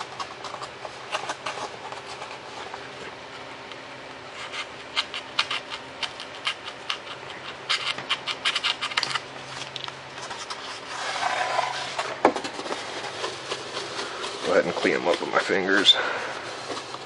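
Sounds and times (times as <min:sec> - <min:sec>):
foam board crackling: 0:10.9 - 0:17.0.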